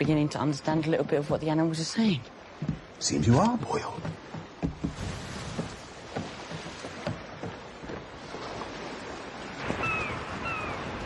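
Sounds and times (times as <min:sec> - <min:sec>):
sea wash: 0:00.0 - 0:11.0
wind: 0:00.0 - 0:11.0
wooden creaks and knocks: 0:02.5 - 0:08.2.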